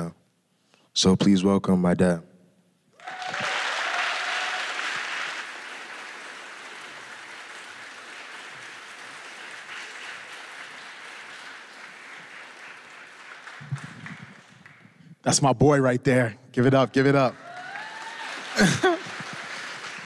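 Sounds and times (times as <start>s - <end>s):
audience applauding: 3.0s - 15.0s, 17.0s - 20.0s.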